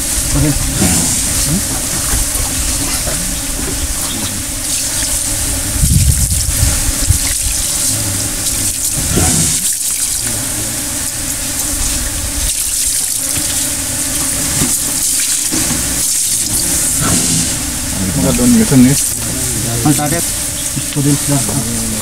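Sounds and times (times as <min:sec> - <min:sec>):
low rumble: 0:05.4 - 0:07.2.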